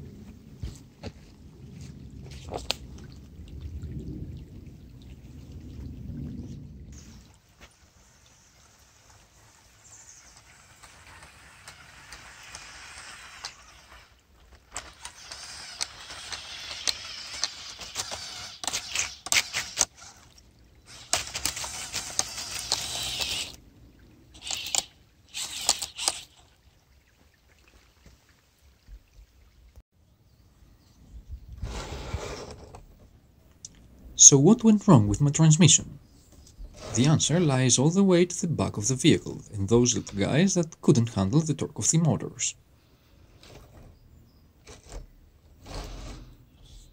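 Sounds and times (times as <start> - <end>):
toy tracks splashing water: 7.0 - 23.6, 24.3 - 29.0.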